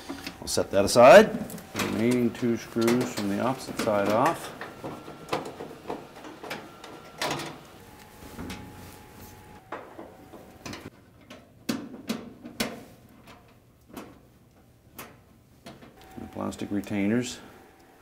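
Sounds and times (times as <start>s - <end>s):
clicks and knocks of metal and plastic: 1.4s - 8.7s, 9.6s - 16.2s.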